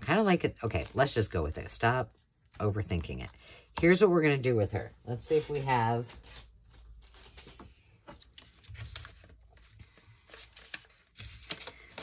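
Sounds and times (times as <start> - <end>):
paper rustling and crinkling: 5.2 - 12.0.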